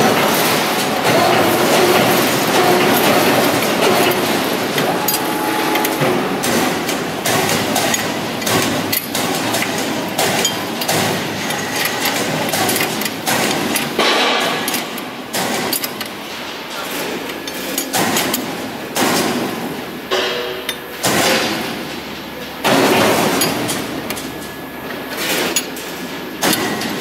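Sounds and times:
steady mechanical din: 0:00.0 - 0:16.5
short machine whine: 0:01.2 - 0:07.2
metal tools clanking on steel: 0:01.2 - 0:15.0.

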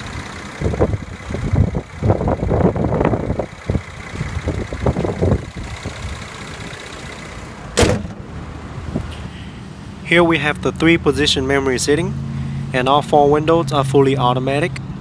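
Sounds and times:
car engine idling: 0:00.0 - 0:13.5
handling noise: 0:07.7 - 0:08.4
car hood slamming shut: 0:07.8 - 0:08.3.

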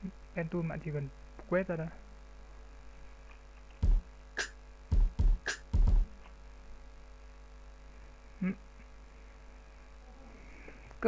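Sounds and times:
kick drum hits: 0:03.8 - 0:04.1, 0:04.9 - 0:06.1
snare drum hits: 0:03.8 - 0:06.0.

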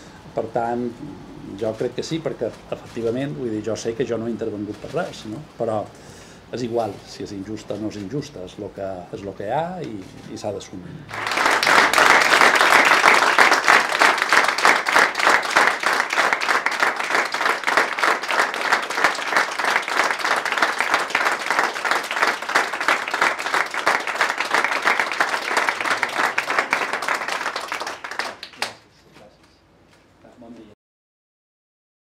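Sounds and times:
people applauding: 0:11.1 - 0:28.8.

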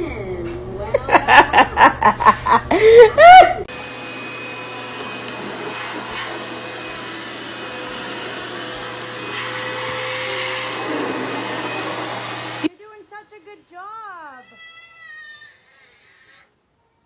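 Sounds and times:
person laughing and crying out: 0:00.9 - 0:03.7
handheld vacuum cleaner running: 0:03.7 - 0:12.9.

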